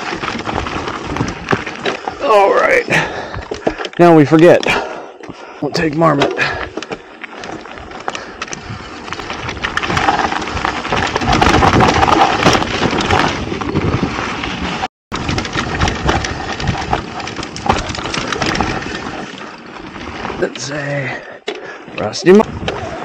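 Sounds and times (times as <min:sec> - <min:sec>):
bike clattering over bumps: 0:00.0 - 0:21.9
bike tyres crunching over stones: 0:00.0 - 0:23.0
wind noise on microphone: 0:08.5 - 0:19.1.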